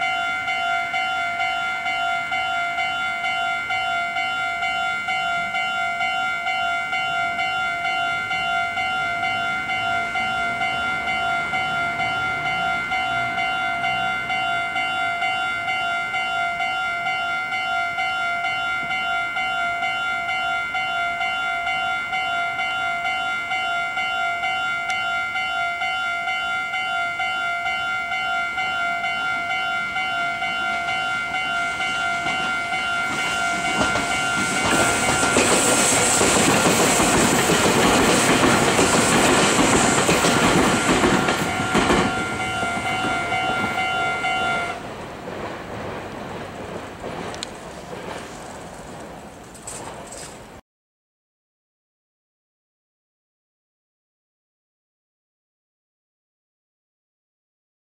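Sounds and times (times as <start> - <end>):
level crossing bells clanging: 0.0 - 44.8
train rumble and wheel clatter: 0.0 - 50.6.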